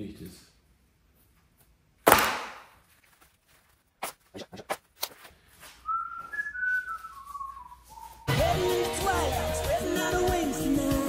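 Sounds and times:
person whistling a tune: 0:05.8 - 0:08.7.

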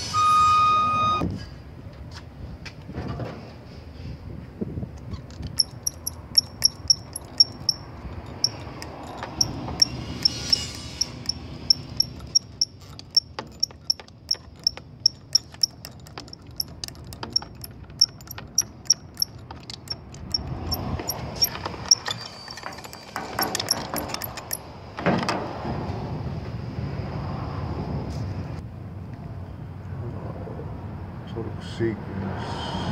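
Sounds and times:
oil can pump squeaky clicks: 0:05.0 - 0:24.6
handling noise: 0:05.0 - 0:25.5.

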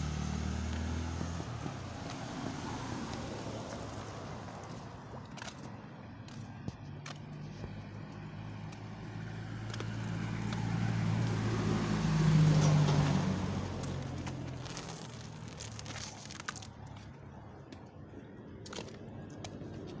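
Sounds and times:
road noise: 0:00.0 - 0:20.0
vehicle engine hum: 0:00.0 - 0:20.0.

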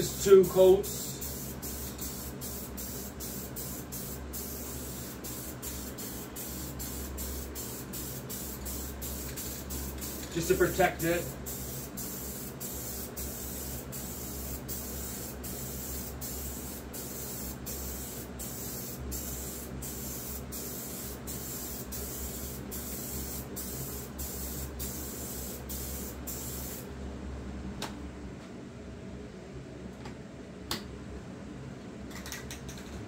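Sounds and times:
aerosol can spraying hiss: 0:00.5 - 0:26.8.

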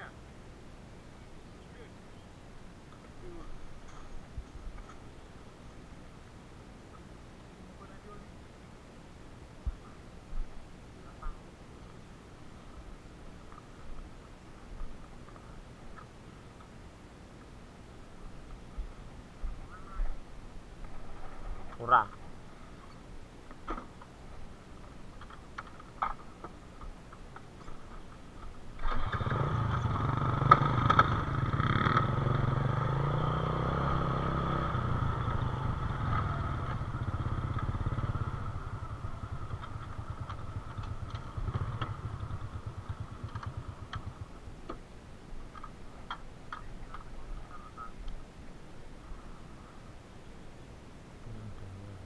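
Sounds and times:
small engine running: 0:28.8 - 0:44.3.

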